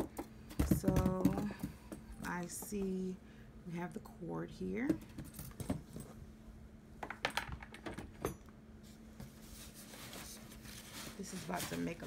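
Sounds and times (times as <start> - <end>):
polystyrene foam packing rustling: 9.5 - 12.0.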